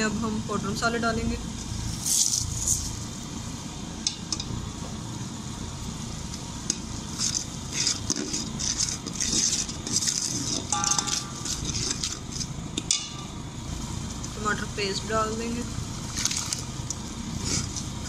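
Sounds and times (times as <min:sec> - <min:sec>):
spices sizzling in hot oil: 0:00.0 - 0:18.0
spoon scraping a metal pot: 0:07.2 - 0:12.5.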